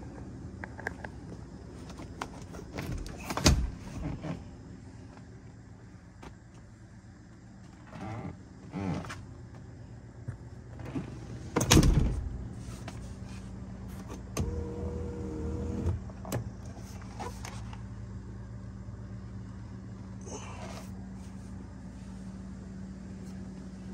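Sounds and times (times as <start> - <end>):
low steady hum: 0.0 - 23.9.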